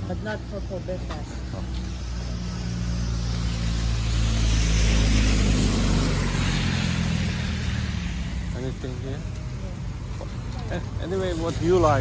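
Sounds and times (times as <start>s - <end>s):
truck engine drone: 0.0s - 12.0s
tyre hiss on wet road: 1.8s - 9.3s.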